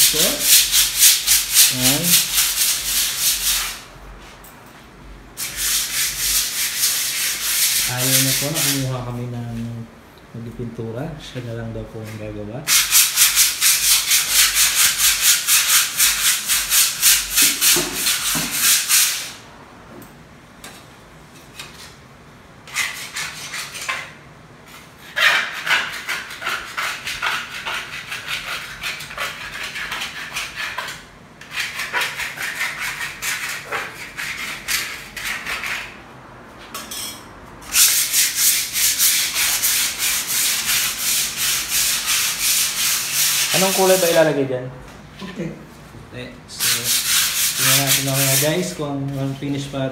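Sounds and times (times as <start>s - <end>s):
sandpaper scrubbing a wall: 0.0s - 3.9s, 5.4s - 9.2s, 12.7s - 19.4s, 22.7s - 24.1s, 25.0s - 36.0s, 37.7s - 44.4s, 46.5s - 49.6s.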